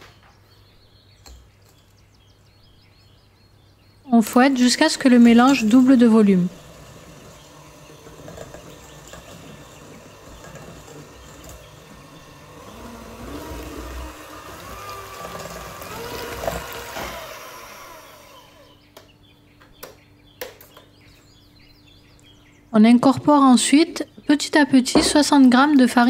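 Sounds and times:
electric mixer whirring: 0:05.0 - 0:18.9.

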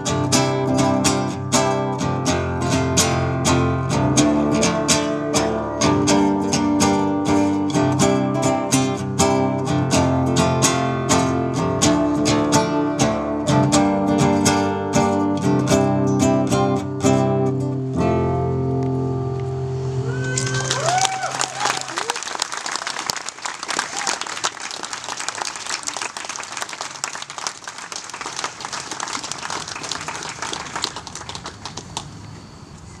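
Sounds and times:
acoustic guitar strumming: 0:00.0 - 0:20.6.

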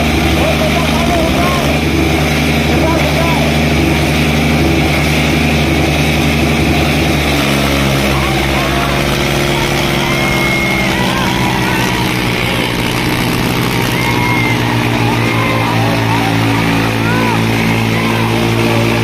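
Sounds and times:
diesel tractor engines running: 0:00.0 - 0:19.0
crowd shouting: 0:06.2 - 0:19.0.

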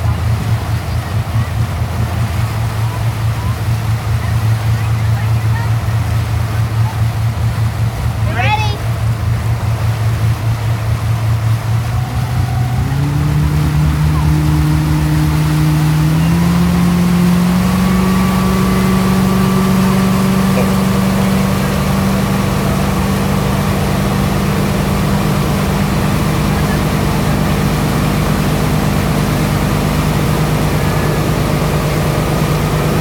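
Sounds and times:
motorboat engine: 0:00.0 - 0:33.0
rushing wake water: 0:00.0 - 0:33.0.

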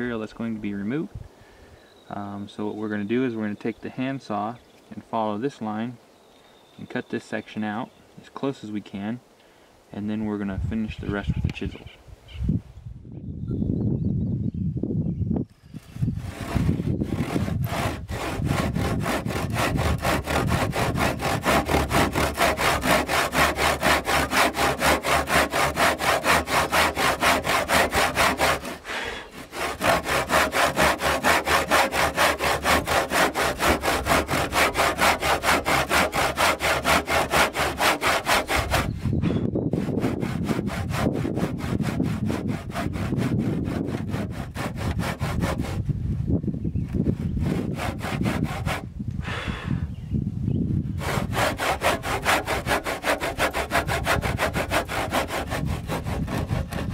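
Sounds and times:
handsaw cutting timber: 0:15.8 - 0:45.8, 0:47.0 - 0:48.9, 0:51.0 - 0:56.9.

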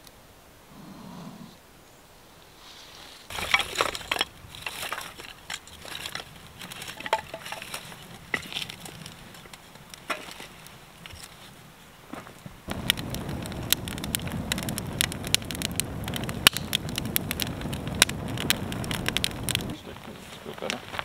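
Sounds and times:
dry sticks snapping: 0:12.7 - 0:19.7.

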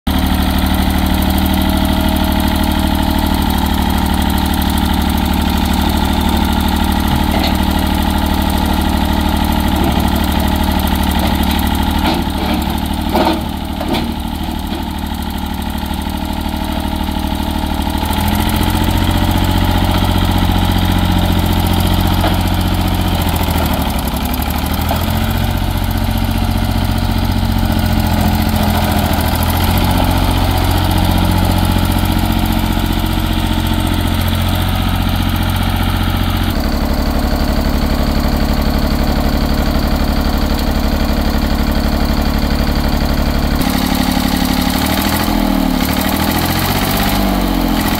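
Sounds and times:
tractor engine running: 0:00.1 - 0:47.9
clunks: 0:06.6 - 0:08.2, 0:09.6 - 0:15.3.

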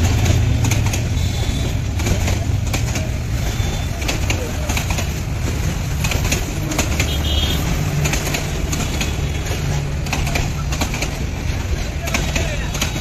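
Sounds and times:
train rumbling past: 0:00.0 - 0:13.0
train wheels clacking on track: 0:00.0 - 0:13.0.

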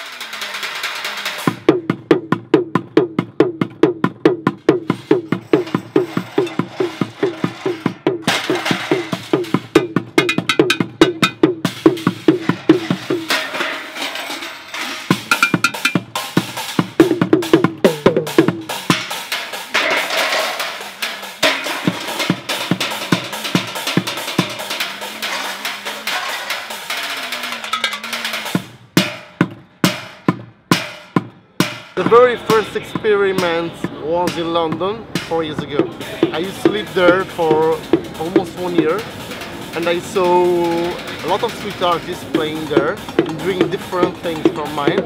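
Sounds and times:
clattering hits on pots and metal: 0:04.8 - 0:11.4, 0:12.0 - 0:16.2, 0:19.0 - 0:30.1.

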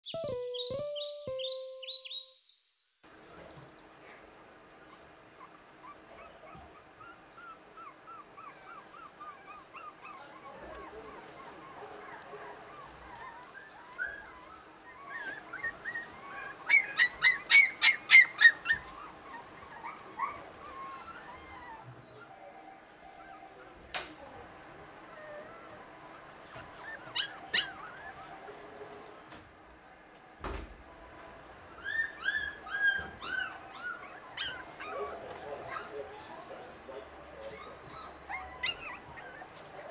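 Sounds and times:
puppies whimpering: 0:04.7 - 0:23.9, 0:24.8 - 0:29.1, 0:31.7 - 0:39.9
puppy yapping: 0:04.8 - 0:22.2, 0:25.1 - 0:28.6, 0:31.8 - 0:36.6, 0:37.4 - 0:39.9.

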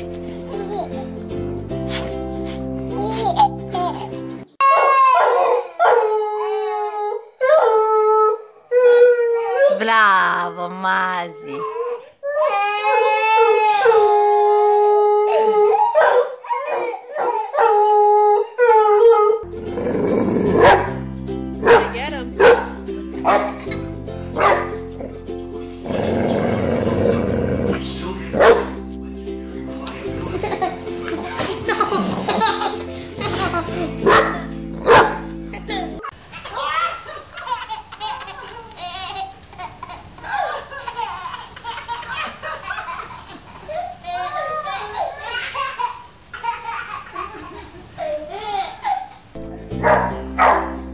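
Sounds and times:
background music: 0:00.0 - 0:04.5, 0:17.8 - 0:36.1, 0:49.4 - 0:50.9
toddler laughing: 0:00.5 - 0:01.2, 0:02.9 - 0:05.2, 0:29.8 - 0:34.5, 0:35.5 - 0:49.3
toddler crying: 0:03.0 - 0:09.9, 0:11.2 - 0:19.4, 0:43.6 - 0:47.3
dog howling: 0:04.6 - 0:09.8
dog barking: 0:04.7 - 0:06.0, 0:16.0 - 0:16.4, 0:20.6 - 0:20.9, 0:21.6 - 0:23.6, 0:24.4 - 0:24.8, 0:28.4 - 0:28.8, 0:34.0 - 0:35.2, 0:49.8 - 0:50.8.

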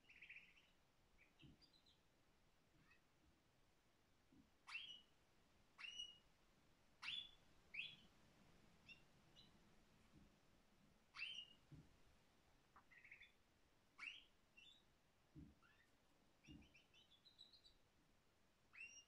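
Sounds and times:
canary singing: 0:00.0 - 0:02.0, 0:02.8 - 0:03.0, 0:04.6 - 0:05.2, 0:05.8 - 0:06.3, 0:07.0 - 0:08.1, 0:08.8 - 0:09.6, 0:11.1 - 0:11.7, 0:12.8 - 0:13.4, 0:14.0 - 0:14.9, 0:15.6 - 0:17.8, 0:18.7 - 0:19.0.

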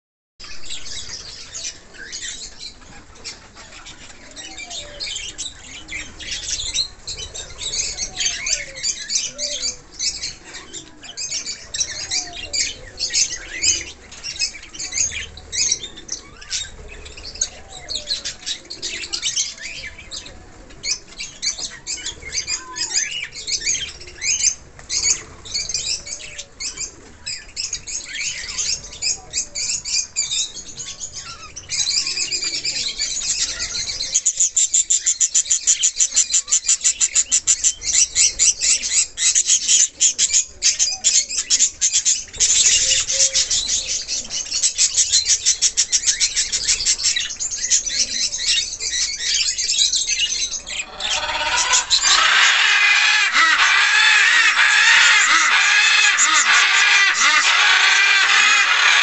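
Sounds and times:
budgerigars chattering and chirping: 0:00.4 - 0:59.0.

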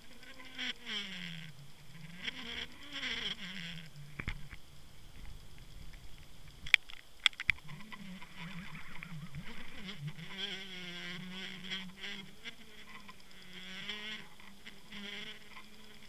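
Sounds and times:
buzzing whine: 0:00.0 - 0:16.0
low wavering underwater hum: 0:00.0 - 0:16.0
sharp clicks: 0:05.2 - 0:08.0.

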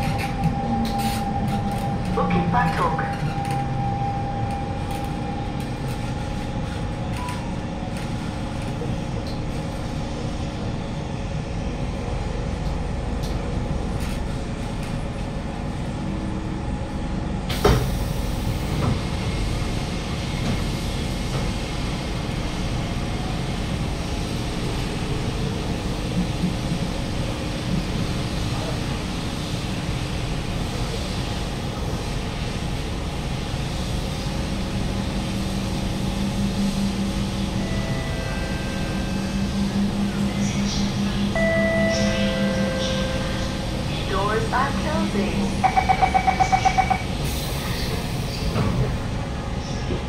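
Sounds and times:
train low rumble: 0:00.0 - 0:50.0
train doors hissing open: 0:17.5 - 0:19.1, 0:47.1 - 0:49.0.

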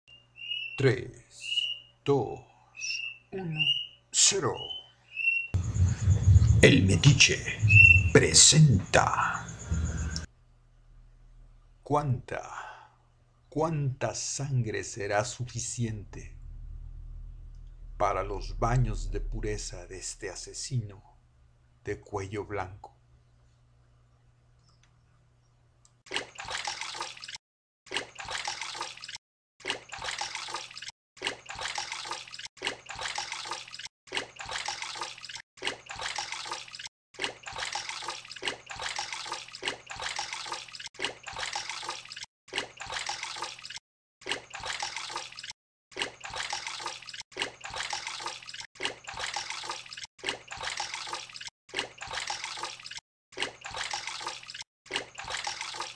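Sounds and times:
water sloshing and running: 0:26.1 - 0:55.9.

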